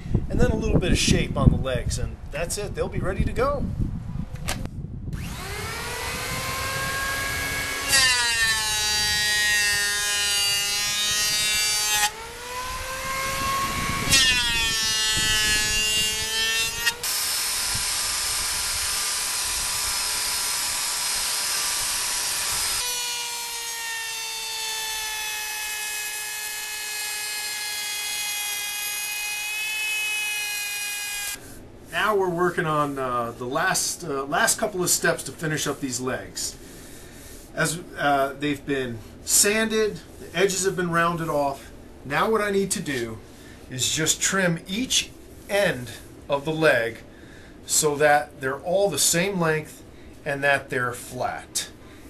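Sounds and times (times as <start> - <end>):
power tool motor whine: 5.1 - 31.4.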